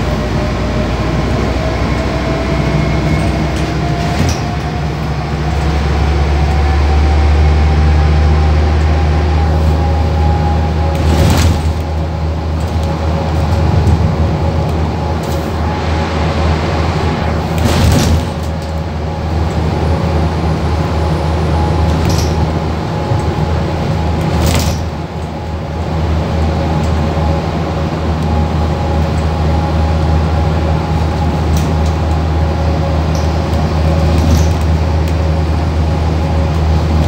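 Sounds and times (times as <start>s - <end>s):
bus engine droning: 0.0s - 37.0s
bodywork knocks and rattles: 17.6s - 18.8s.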